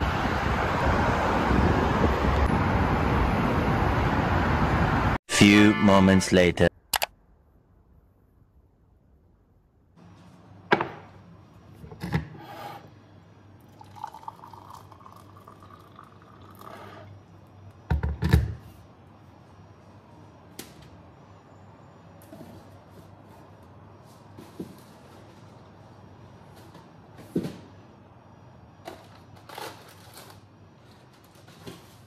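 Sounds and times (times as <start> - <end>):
liquid pouring into mug: 13.6 - 17.1.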